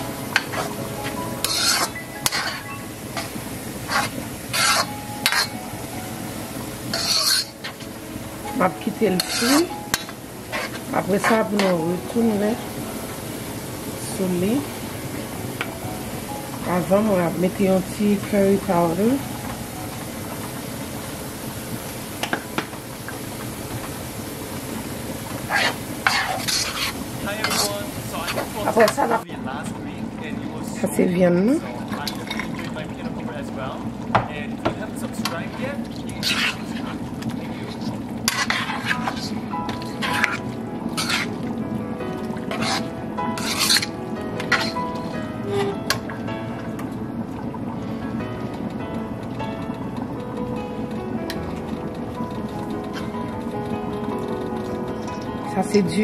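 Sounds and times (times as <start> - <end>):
sauce sizzling: 0.0 - 56.0
spoon scraping a wok: 1.4 - 2.6, 3.9 - 5.6, 6.9 - 7.8, 9.2 - 11.5, 25.5 - 27.7, 36.2 - 36.6, 38.3 - 40.4, 41.0 - 41.4, 42.5 - 44.8.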